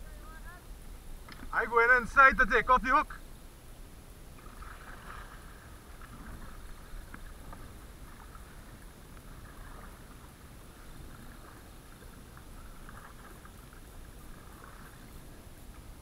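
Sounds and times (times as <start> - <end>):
water sloshing around kayak: 4.1 - 16.0.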